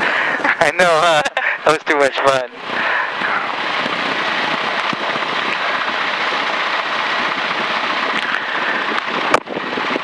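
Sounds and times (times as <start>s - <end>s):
airplane engine and propeller hiss: 0.0s - 3.6s.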